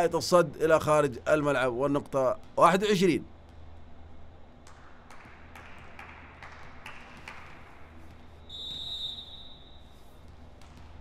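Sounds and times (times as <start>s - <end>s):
referee's whistle blast: 8.5s - 10.0s.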